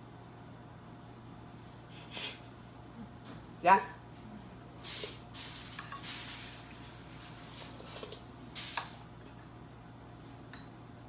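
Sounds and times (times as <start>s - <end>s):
faint steady hum: 0.0s - 11.0s
spoon sipping: 7.5s - 9.5s.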